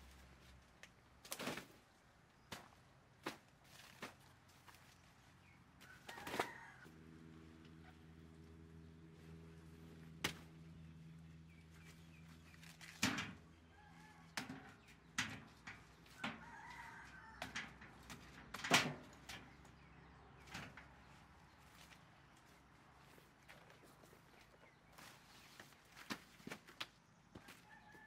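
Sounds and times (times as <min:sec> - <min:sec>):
machete chopping knocks and thuds: 0:10.2 - 0:10.5.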